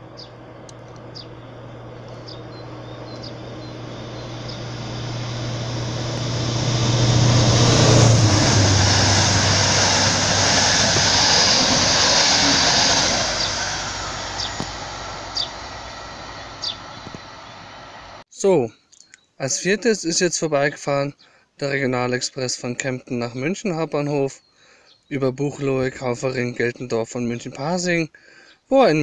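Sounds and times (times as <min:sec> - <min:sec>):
train wheels on rails: 0:00.0 - 0:18.2
diesel locomotive engine hum: 0:00.0 - 0:18.3.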